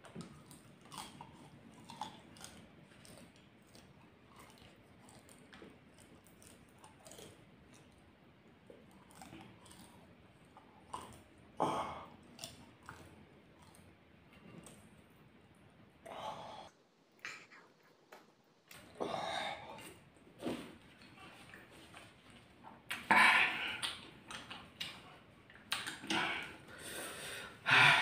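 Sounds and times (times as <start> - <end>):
chewing and crunching: 0.0 - 15.2, 19.8 - 26.5
wet mouth clicks: 25.7 - 26.2.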